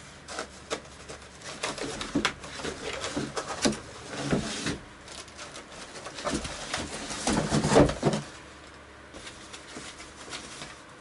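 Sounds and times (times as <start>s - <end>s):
packaging wrap rustling: 0.2s - 8.2s.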